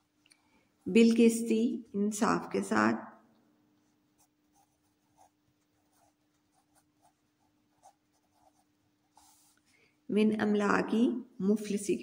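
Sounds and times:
pencil scratching on paper: 4.2s - 9.6s.

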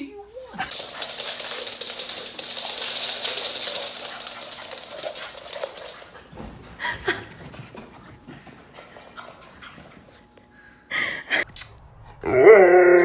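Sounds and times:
dog claws pattering on wooden floor: 0.7s - 6.7s.

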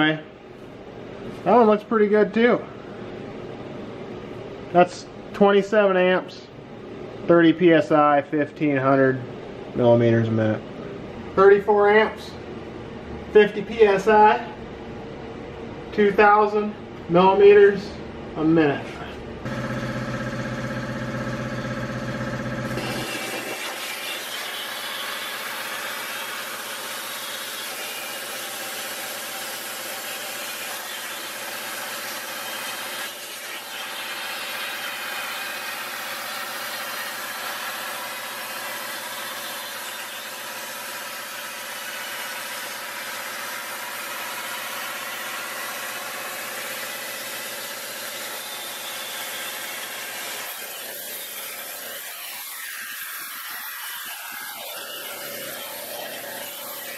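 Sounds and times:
plasma cutter arc hissing: 22.7s - 26.8s, 48.5s - 56.9s.

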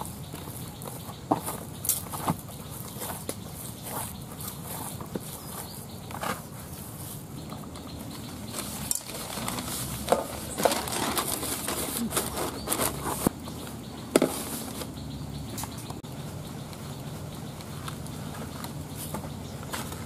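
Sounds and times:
newspaper rustling and crinkling: 8.4s - 13.3s.

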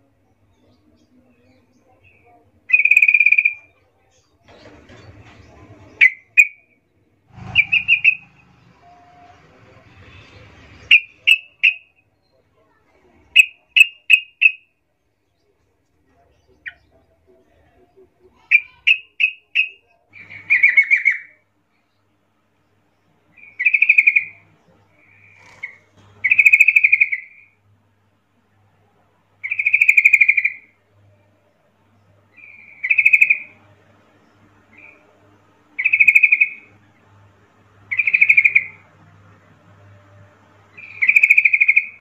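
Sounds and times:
bird calling: 7.4s - 12.0s, 17.7s - 21.4s, 35.8s - 36.7s, 37.9s - 38.9s, 40.7s - 42.0s.

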